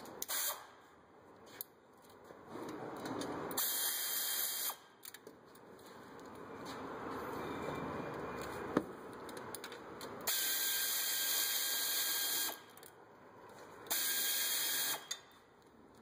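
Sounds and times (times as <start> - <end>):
pneumatic air ratchet running: 0.2 - 0.7, 3.5 - 4.8, 10.3 - 12.7, 13.9 - 15.2.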